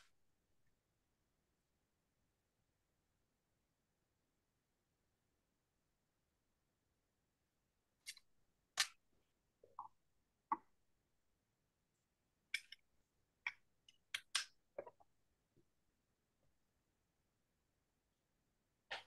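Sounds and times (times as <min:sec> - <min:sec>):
sharp clicks and pops: 0:13.5 - 0:15.1.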